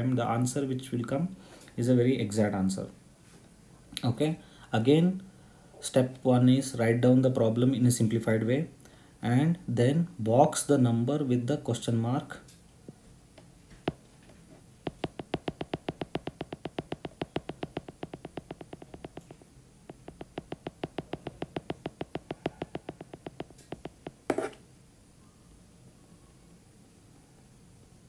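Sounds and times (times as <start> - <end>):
tapping on tablet screen: 14.8 - 24.6.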